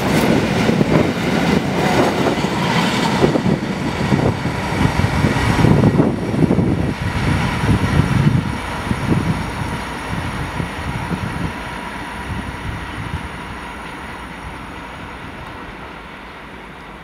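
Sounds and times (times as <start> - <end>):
train wheels knocking: 0.0 - 10.2
freight train rolling over rails: 0.0 - 17.0.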